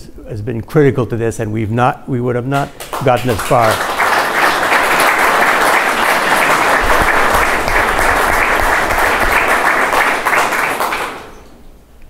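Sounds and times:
audience applauding: 2.6 - 11.5.

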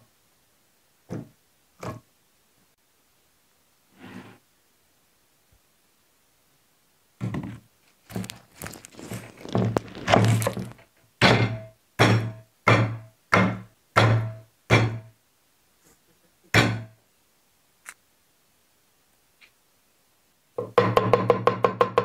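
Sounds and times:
cleaver chopping on wooden board: 11.2 - 15.1.

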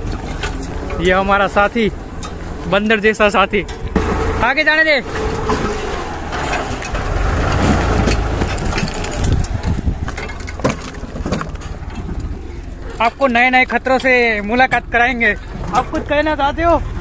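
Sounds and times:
stones crunching under wheels: 0.0 - 17.0
tractor engine under load: 0.0 - 17.0
wind on microphone: 7.0 - 10.3.

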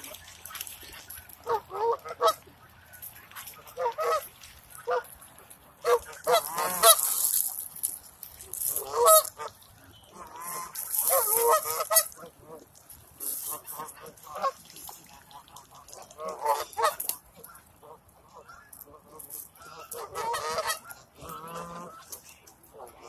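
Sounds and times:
geese honking: 0.1 - 5.1, 10.1 - 12.6, 13.4 - 23.0.

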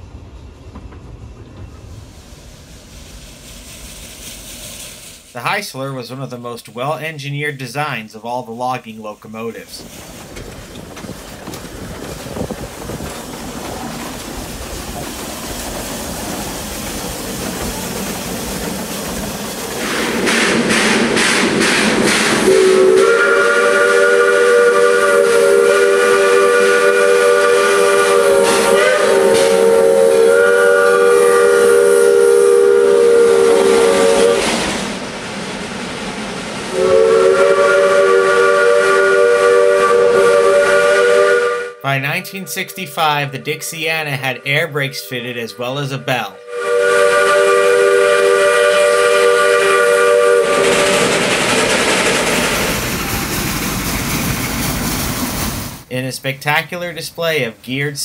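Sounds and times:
steam hissing: 1.7 - 6.0, 9.0 - 41.8, 46.4 - 55.9
steam locomotive chime whistle: 22.4 - 34.5, 36.7 - 51.2.

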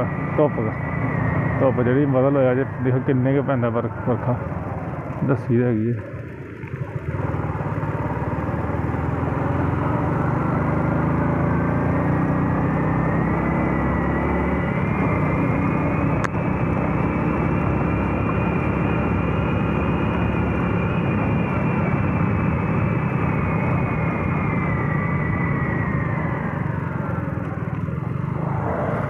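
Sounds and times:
motorbike engine running: 3.9 - 29.0
wind rush: 21.5 - 29.0.

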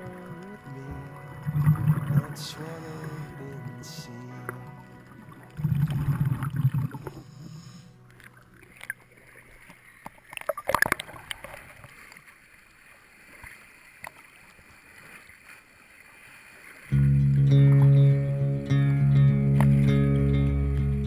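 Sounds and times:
muffled scuba exhaust bubbles: 0.0 - 9.0.

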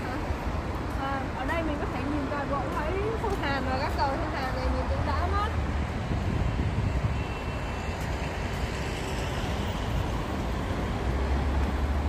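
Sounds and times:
highway traffic rumble: 0.0 - 12.0.

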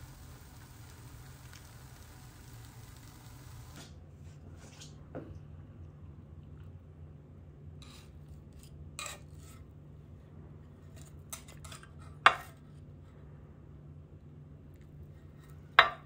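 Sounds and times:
utensil scraping frying pan: 7.8 - 9.7.

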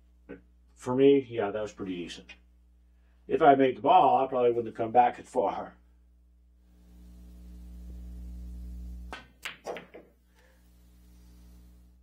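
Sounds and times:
steady low hum: 0.0 - 9.2, 10.2 - 12.0
ball knocking into pocket: 9.1 - 10.2
pool balls clacking: 9.1 - 10.2.

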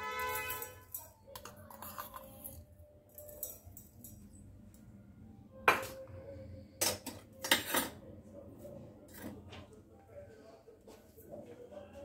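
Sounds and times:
kitchen utensils clattering: 6.8 - 8.0.

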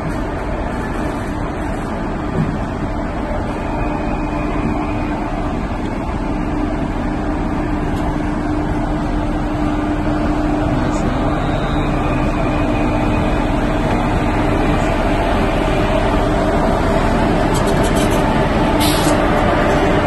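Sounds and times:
electric locomotive humming: 0.0 - 20.0.

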